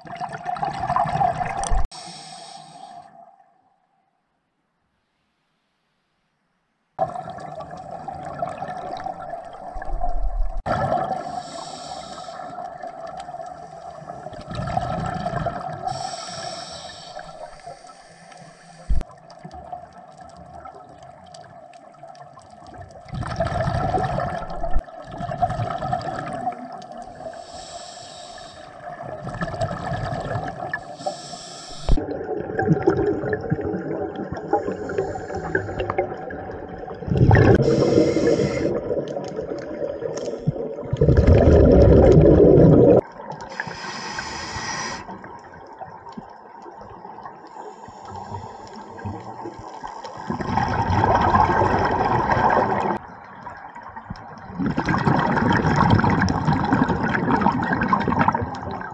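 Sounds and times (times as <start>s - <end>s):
gurgling exhaled bubbles: 0.0s - 1.9s, 7.0s - 16.1s, 22.7s - 27.3s, 28.8s - 31.0s, 31.7s - 47.4s, 48.0s - 58.9s
regulator hissing inhalations: 1.9s - 3.2s, 11.2s - 12.6s, 15.8s - 19.0s, 27.2s - 28.8s, 30.8s - 32.0s, 34.7s - 35.9s, 37.6s - 38.8s, 43.5s - 45.2s, 47.5s - 49.0s.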